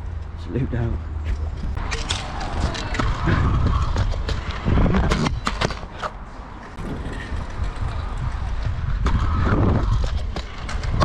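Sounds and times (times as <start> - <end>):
scooter wheels rolling on concrete: 0.0 - 11.0
scooter clacks and knocks: 6.8 - 11.0.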